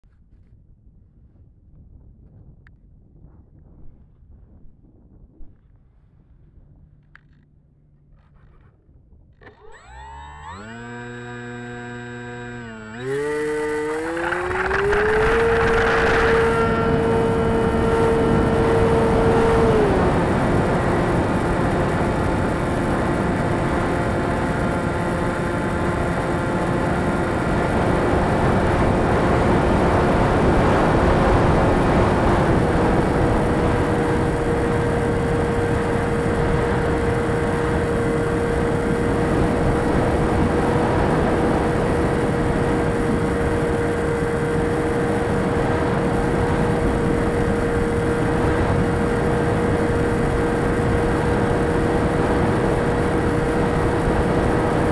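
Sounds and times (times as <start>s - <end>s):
model plane propeller drone: 5.6s - 54.9s.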